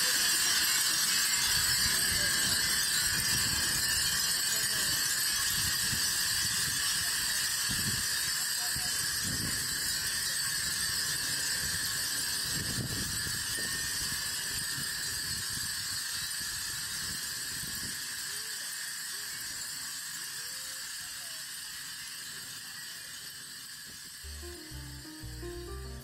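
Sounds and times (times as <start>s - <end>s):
glass wind chimes tinkling: 0.0s - 20.4s.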